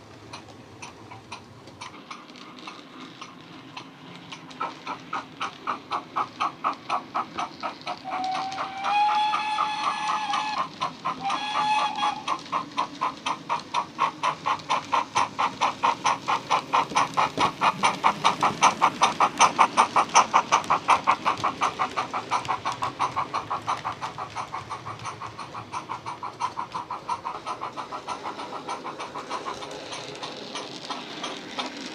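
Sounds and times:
steam exhaust chuffs: 0.0s - 31.9s
steam locomotive whistle: 8.0s - 12.3s.

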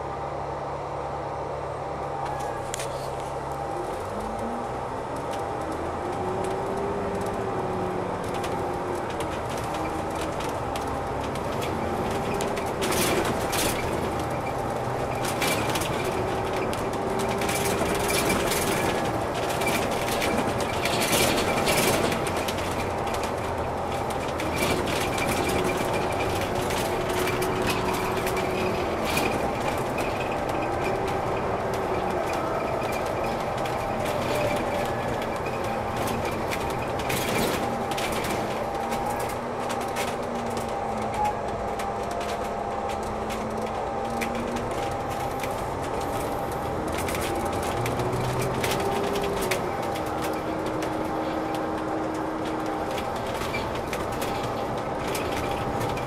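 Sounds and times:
bus engine and road noise: 0.0s - 56.0s
engine whine: 0.0s - 56.0s
body knocks and rattles: 8.2s - 56.0s.

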